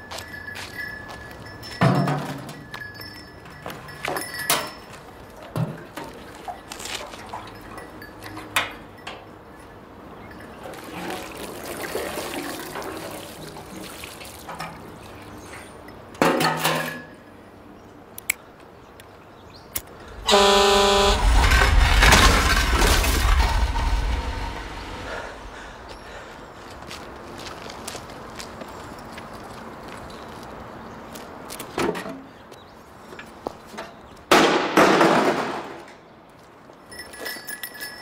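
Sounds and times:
vehicle horn blaring: 20.1s - 22.0s
loud low rumbling: 20.1s - 26.3s.

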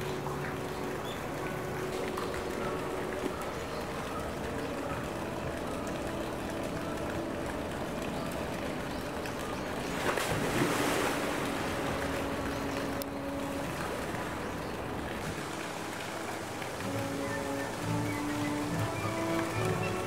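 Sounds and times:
water rushing and sloshing: 0.0s - 20.0s
water splash: 6.1s - 20.0s.

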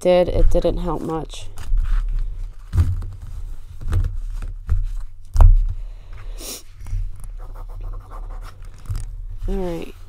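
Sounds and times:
knocks and thumps: 2.5s - 5.8s.

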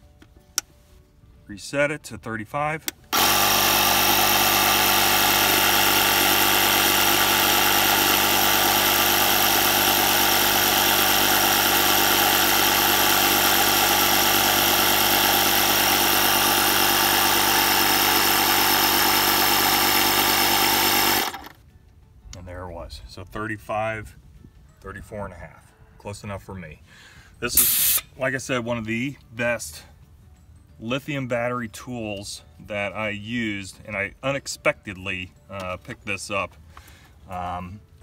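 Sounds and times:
tyre inflator compressor running: 2.9s - 21.6s, 27.5s - 28.1s.

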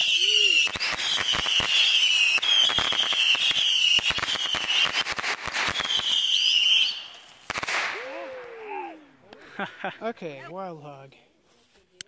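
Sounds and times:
firework crackling pops: 0.0s - 8.2s
firework whistle: 0.0s - 8.2s
firework bangs: 0.0s - 8.3s.

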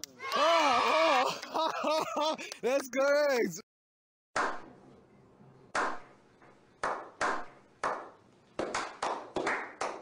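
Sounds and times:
slow hand claps with echo: 6.8s - 10.0s.

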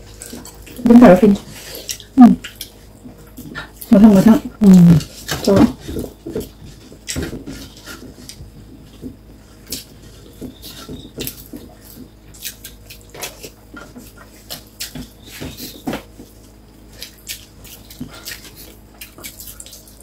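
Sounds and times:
wet chewing and lip smacks: 1.7s - 3.9s, 9.6s - 20.0s.

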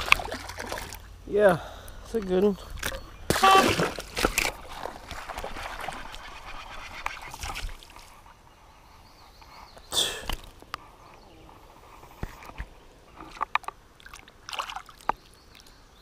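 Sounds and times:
fish splashing in water: 0.0s - 1.0s.

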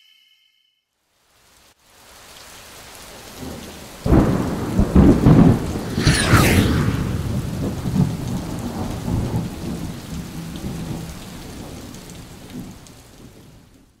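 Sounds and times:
low thunder-like rumble: 4.7s - 9.5s.

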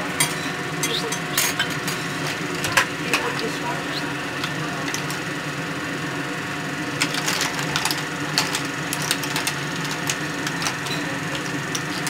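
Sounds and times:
steady low hum: 0.0s - 12.0s
clam shells clicking and clattering: 7.0s - 12.0s.

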